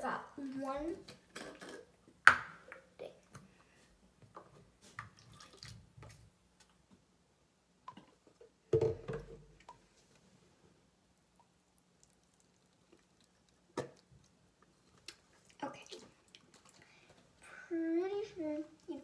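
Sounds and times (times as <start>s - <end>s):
liquid dripping and trickling: 5.0s - 6.2s, 11.2s - 17.1s
liquid pouring into paper cup: 11.2s - 16.9s.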